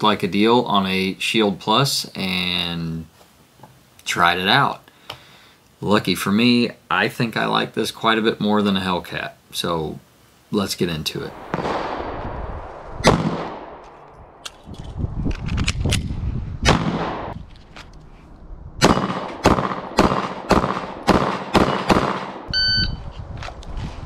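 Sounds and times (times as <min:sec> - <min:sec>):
pistol shots: 0:16.7 - 0:17.4, 0:18.8 - 0:22.5
short electronic beep: 0:22.5 - 0:23.0.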